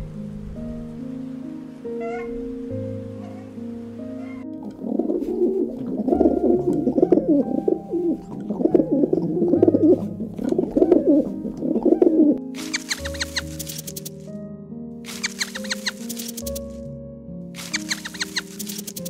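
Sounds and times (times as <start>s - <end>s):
background music: 0.0s - 19.0s
dove cooing: 2.0s - 2.4s, 3.2s - 3.6s, 4.2s - 13.5s
high-pitched squeaks: 12.6s - 14.3s, 15.1s - 16.8s, 17.6s - 19.0s.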